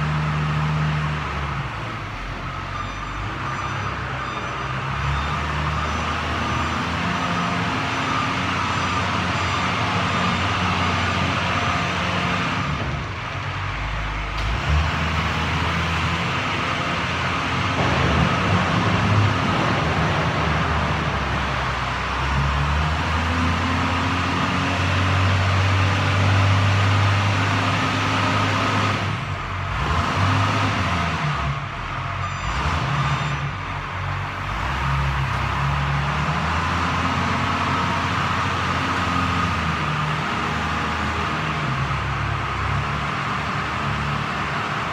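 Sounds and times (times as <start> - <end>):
wheel loader diesel engine: 0.0 - 44.9.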